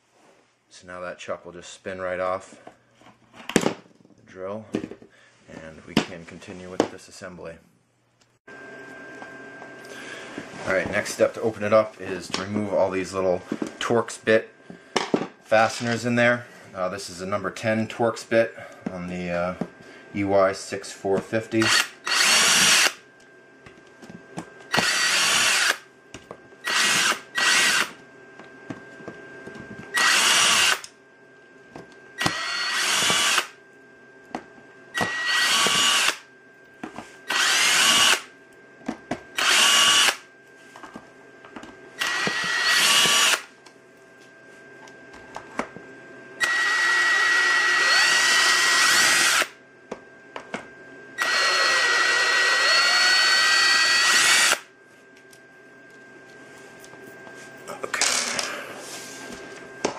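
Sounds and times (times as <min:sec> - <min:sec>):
cordless drill driving screws: 0:21.6 - 0:23.0, 0:24.7 - 0:25.8, 0:26.6 - 0:27.9, 0:30.0 - 0:30.8, 0:32.2 - 0:33.5, 0:35.0 - 0:36.2, 0:37.3 - 0:38.2, 0:39.4 - 0:40.2, 0:42.0 - 0:43.5, 0:46.4 - 0:49.5, 0:51.2 - 0:54.6.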